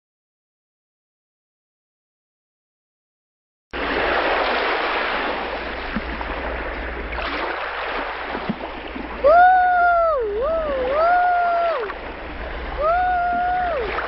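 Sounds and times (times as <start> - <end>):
rushing water: 3.8 - 14.0.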